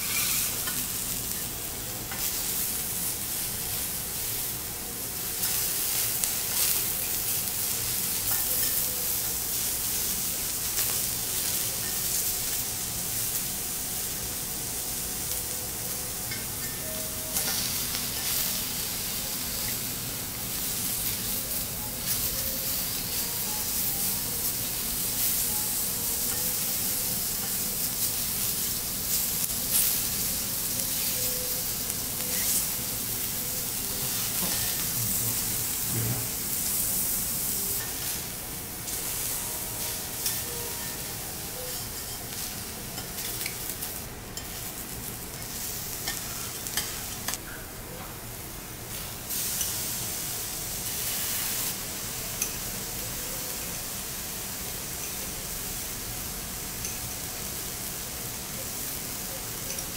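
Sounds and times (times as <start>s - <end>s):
knife and spatula scraping griddle: 0.0s - 0.8s
seafood sizzling on griddle: 0.0s - 47.4s, 48.3s - 59.9s.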